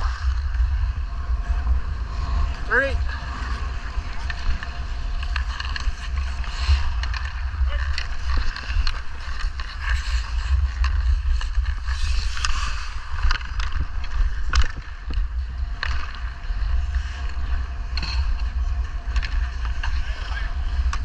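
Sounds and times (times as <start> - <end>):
skate blades scraping ice: 0.0 - 21.0
wind rumbling on microphone: 0.0 - 21.0
stick clicking on puck: 6.9 - 16.2.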